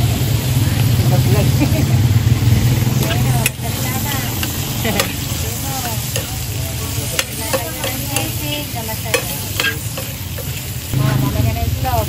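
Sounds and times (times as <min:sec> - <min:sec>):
meat and onions sizzling: 0:00.0 - 0:12.0
metal utensils scraping a pan: 0:03.0 - 0:11.0.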